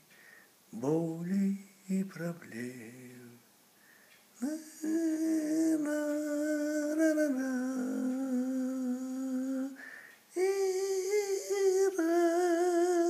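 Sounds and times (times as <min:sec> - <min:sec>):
woman humming a melody: 0:10.4 - 0:13.0.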